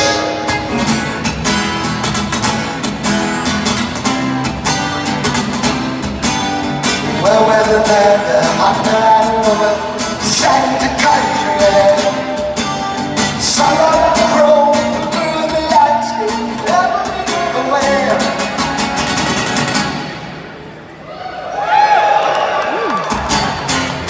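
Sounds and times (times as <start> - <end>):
strummed guitar: 0.0 - 20.8, 23.1 - 24.0.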